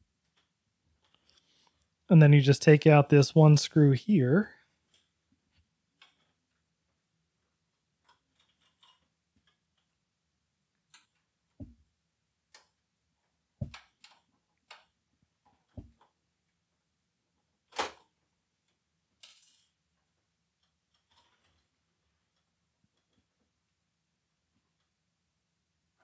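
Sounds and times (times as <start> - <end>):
plastic and metal parts clicking: 8.0 - 10.0, 13.6 - 14.9.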